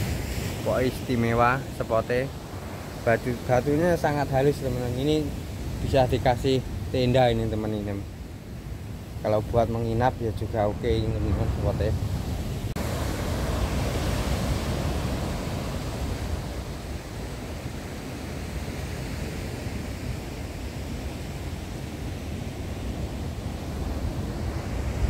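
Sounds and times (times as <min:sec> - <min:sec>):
wind on microphone: 0:00.0 - 0:01.4, 0:08.4 - 0:25.0
surf on rocky shore: 0:00.0 - 0:25.0.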